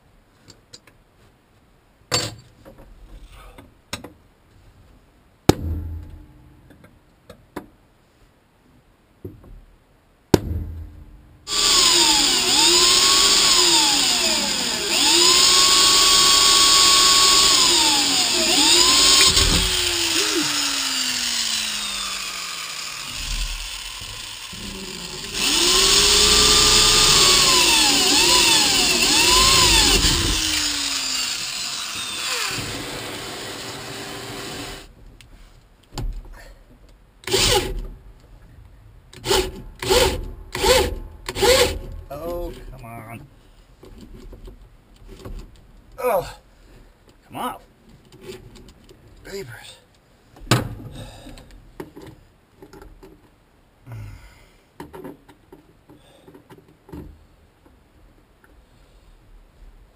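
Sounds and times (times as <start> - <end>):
power drill boring through steel: 11.5 - 34.9, 37.3 - 37.7, 39.2 - 41.8.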